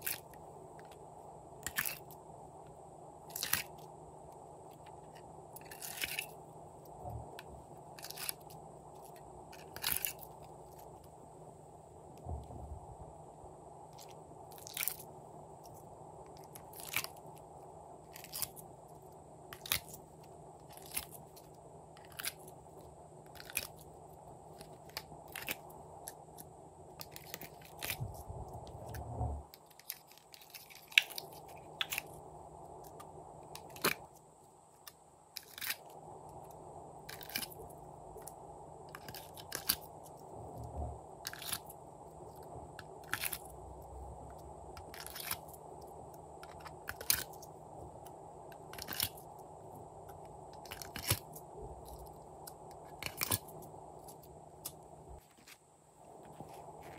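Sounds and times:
faint steady hiss: 0:00.0 - 0:56.9
soft low thuds: 0:12.2 - 0:13.2, 0:28.0 - 0:29.5, 0:40.4 - 0:41.0
slime clicking and crackling: 0:39.0 - 0:40.2, 0:50.1 - 0:54.8.

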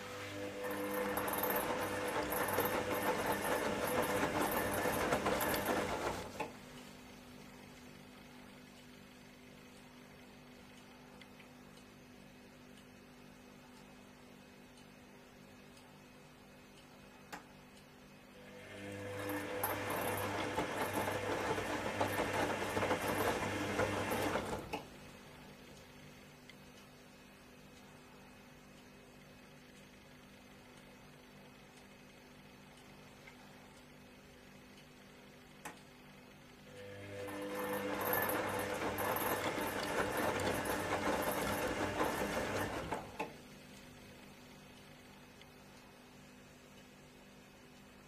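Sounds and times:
washing machine rinsing water: 0:00.0 - 0:06.6, 0:18.7 - 0:25.0, 0:36.9 - 0:43.3.

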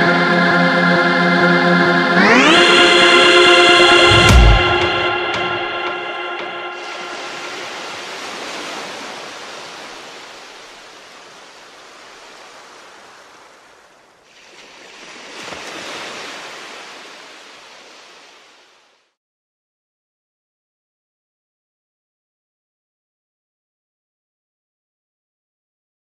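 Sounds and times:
hissing wash of noise: 0:06.8 - 0:11.2.

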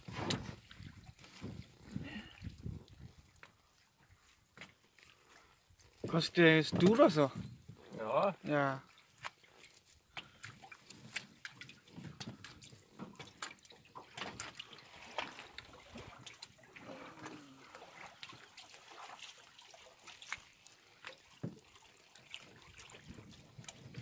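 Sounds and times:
water dripping and splashing: 0:00.0 - 0:24.0.

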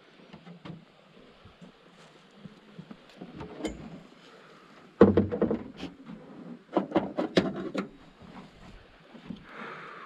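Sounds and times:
knocking in boat: 0:05.0 - 0:05.8.

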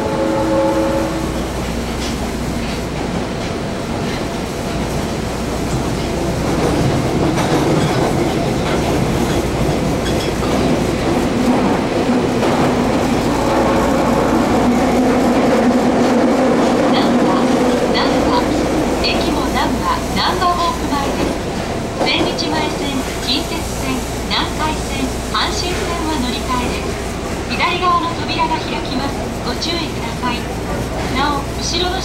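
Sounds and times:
train traction hum: 0:00.0 - 0:32.0
train wheel and rail rumble: 0:00.0 - 0:32.0
clack of rail joints: 0:01.6 - 0:17.1.

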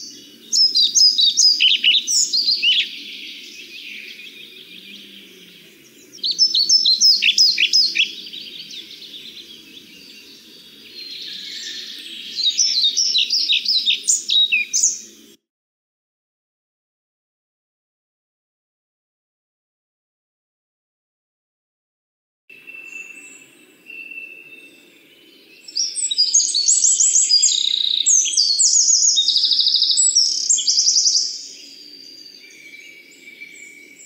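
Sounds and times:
bird singing high sweet notes: 0:00.0 - 0:15.2, 0:22.5 - 0:34.0.

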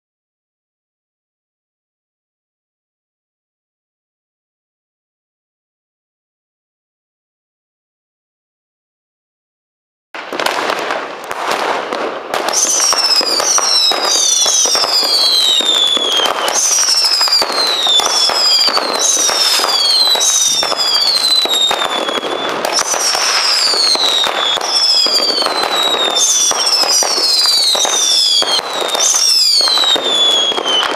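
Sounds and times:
falling firework whistles: 0:10.2 - 0:30.9
firework crackle of pops: 0:10.2 - 0:30.9.

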